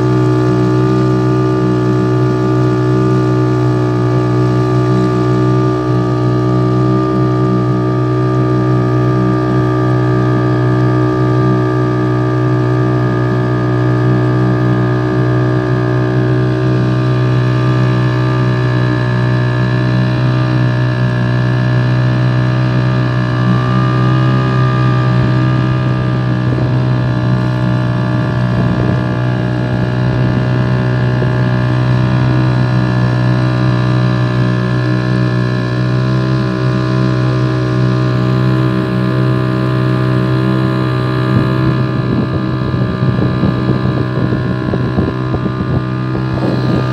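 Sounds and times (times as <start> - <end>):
motorboat engine droning: 0.0 - 46.9.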